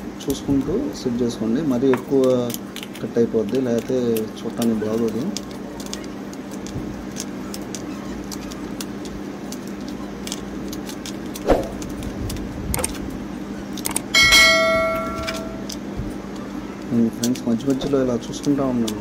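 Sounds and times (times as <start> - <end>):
low hum: 14.0 - 15.9
bell-like ringing tone: 14.2 - 15.7.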